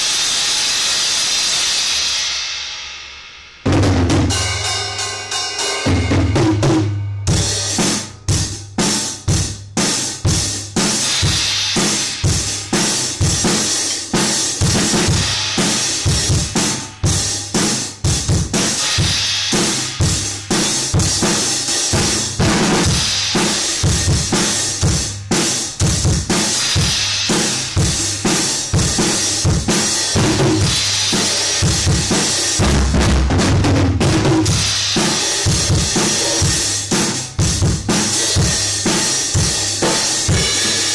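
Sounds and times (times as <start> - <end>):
bass drum: 3.7 - 4.7, 5.8 - 40.9
cymbals ringing: 4.3 - 7.7
snare drum: 5.8 - 24.7, 25.3 - 40.9.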